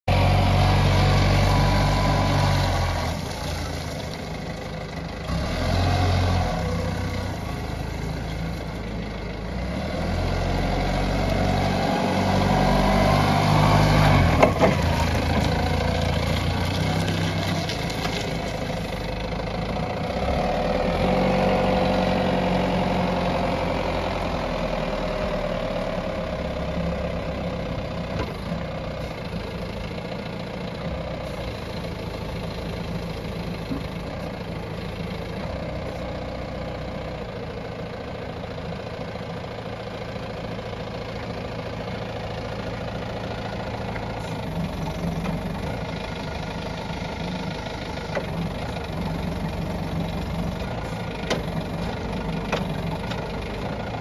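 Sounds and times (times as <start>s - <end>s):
forklift diesel engine running: 0.0s - 54.0s.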